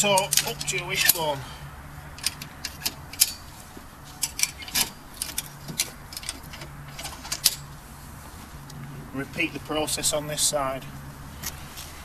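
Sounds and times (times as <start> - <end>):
ratchet strap clicking: 2.2 - 3.5.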